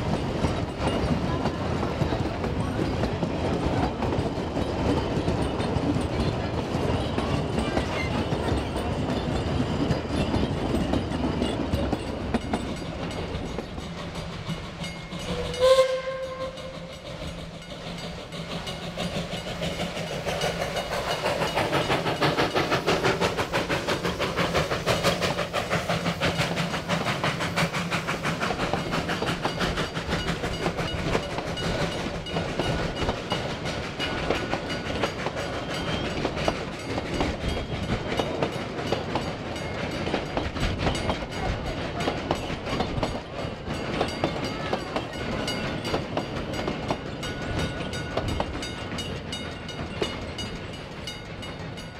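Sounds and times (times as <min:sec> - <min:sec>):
carriages clattering over rail joints: 0:00.0 - 0:51.9
steam train running past: 0:00.0 - 0:51.9
steam whistle blast: 0:15.3 - 0:16.9.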